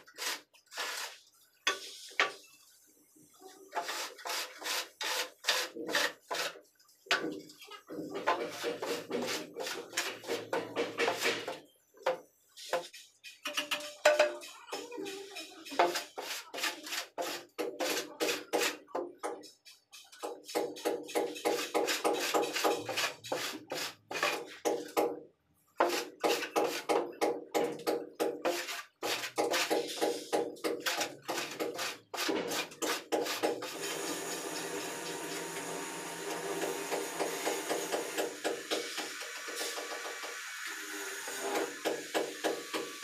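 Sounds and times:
metal edge scraping mortar: 3.7 - 6.6, 7.2 - 11.6, 12.6 - 24.8, 25.8 - 35.4.

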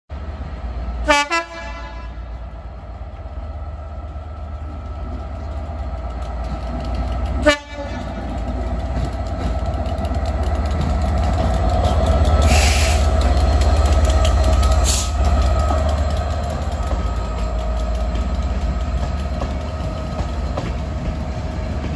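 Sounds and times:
locomotive horn blasts: 1.1 - 2.2, 7.4 - 8.1
diesel engine humming: 2.6 - 21.9.

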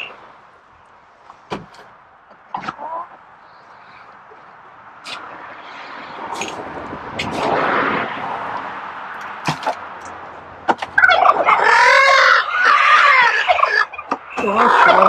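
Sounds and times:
turkey gobbling: 2.5 - 3.2, 10.9 - 15.0.

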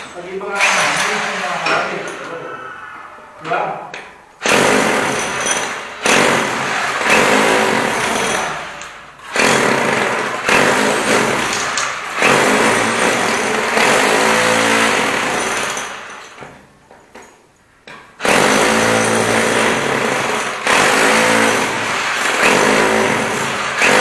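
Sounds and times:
hammer drill chipping masonry: 4.4 - 16.4, 18.2 - 24.0.

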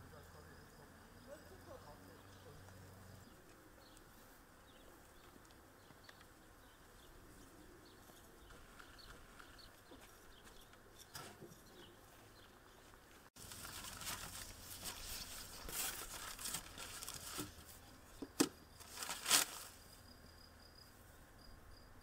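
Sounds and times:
plastic sheeting crinkling: 13.4 - 17.7, 18.8 - 19.8.

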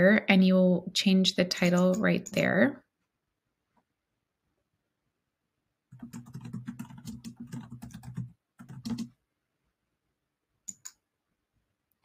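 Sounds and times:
keyboard typing: 1.5 - 2.5, 5.9 - 9.2, 10.6 - 11.0
mouse clicks: 10.6 - 11.0.

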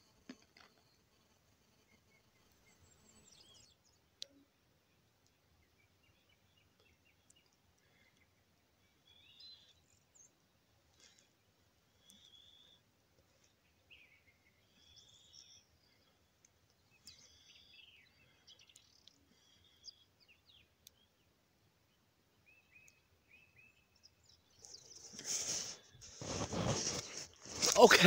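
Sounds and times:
songbird chirps and whistles: 9.0 - 10.2, 12.0 - 12.8, 13.8 - 15.9, 22.4 - 25.9
loud rustle: 25.1 - 28.0.

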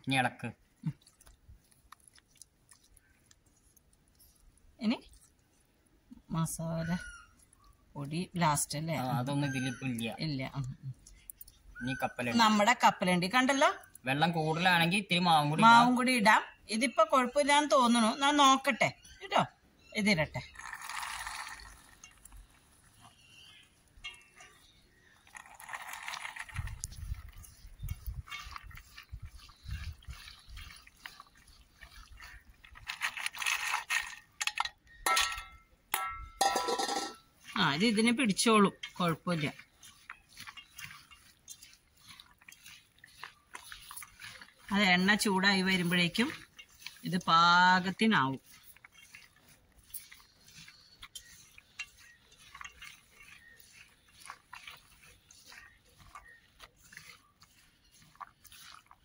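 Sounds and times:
hand mixing wet batter: 0.0 - 59.0
peanuts pouring into bowl: 20.5 - 22.3, 25.3 - 26.9
metal clinks: 34.4 - 37.3.

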